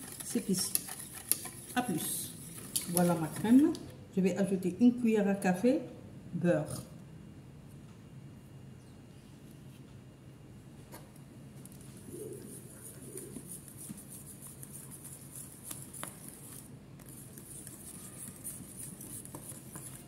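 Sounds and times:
whisk swishing in a saucepan: 0.0s - 3.6s.

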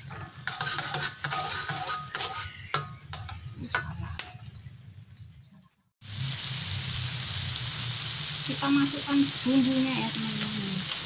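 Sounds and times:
metal spatula scraping wok: 0.0s - 4.5s
light sizzle: 0.0s - 11.0s.

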